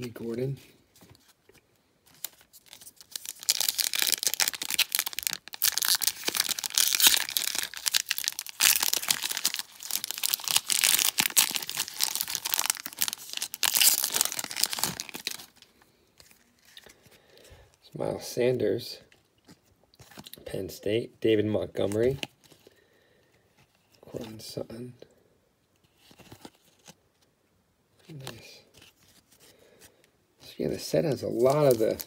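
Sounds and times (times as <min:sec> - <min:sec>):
foil wrapper tearing and crumpling: 0:02.2 - 0:15.6, 0:31.3 - 0:32.0.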